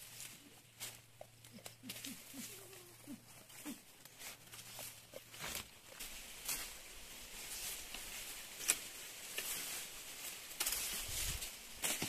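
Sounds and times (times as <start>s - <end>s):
grass leaves rustling: 0.0s - 12.0s
stalks snapping: 10.5s - 11.0s.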